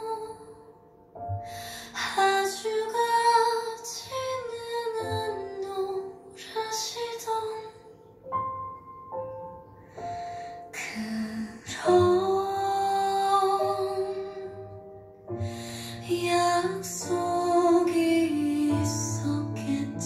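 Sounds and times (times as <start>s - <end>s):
woman singing a ballad: 0.0s - 0.8s, 1.4s - 8.1s, 10.7s - 14.8s, 15.4s - 20.0s.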